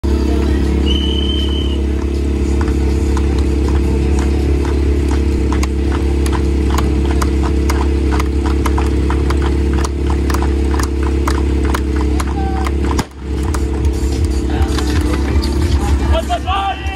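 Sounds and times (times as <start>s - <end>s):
pump engine idling: 0.1s - 16.9s
short high beep: 0.8s - 1.8s.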